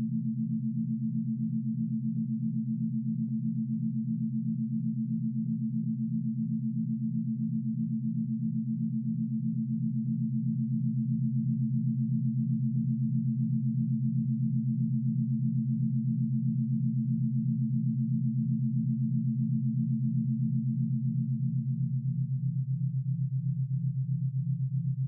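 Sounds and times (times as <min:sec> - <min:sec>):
pulsing low sine tones: 0:00.0 - 0:25.0.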